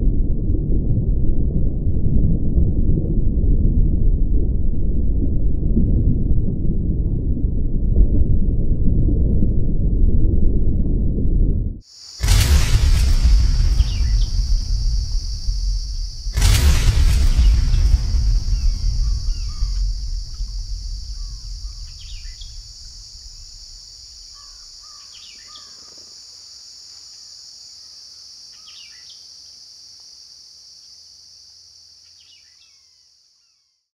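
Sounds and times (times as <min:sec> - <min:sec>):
low rumble: 0:00.0 - 0:24.7
insects droning: 0:11.8 - 0:33.9
bird chirps: 0:13.7 - 0:14.4, 0:18.6 - 0:20.4, 0:21.1 - 0:22.8, 0:24.3 - 0:26.0, 0:28.5 - 0:29.2.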